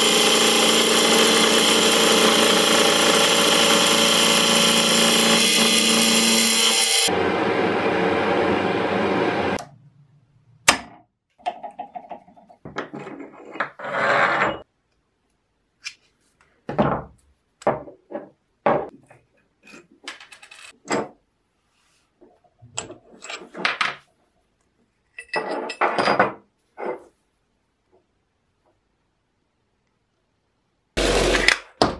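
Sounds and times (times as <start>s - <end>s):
metal parts clinking on bench: 20.1s - 20.8s.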